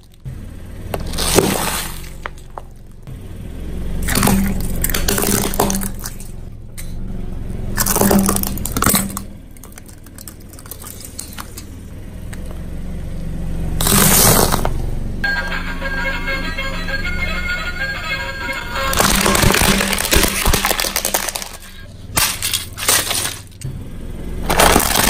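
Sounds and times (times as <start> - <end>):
tyre crunching plastic toys: 0.0 - 0.3, 0.9 - 3.0, 4.0 - 6.4, 7.8 - 12.5, 13.8 - 14.8, 18.4 - 23.7, 24.4 - 25.0
car engine hum: 0.0 - 25.0.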